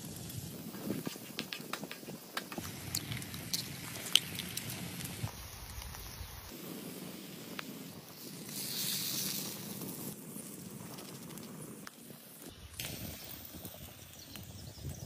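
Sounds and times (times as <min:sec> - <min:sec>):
food sizzling in frying pan: 0:02.1 - 0:15.0.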